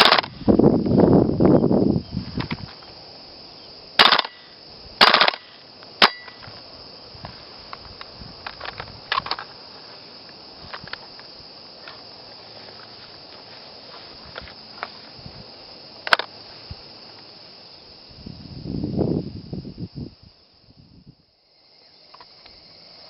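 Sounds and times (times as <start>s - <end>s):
airsoft rifle bursts: 0.0s - 0.3s, 4.0s - 6.4s
rifle handling clicks and knocks: 4.0s - 4.4s, 5.0s - 6.6s, 7.7s - 9.6s, 10.7s - 12.0s, 16.0s - 16.4s
sharp metallic clack: 5.0s - 6.5s.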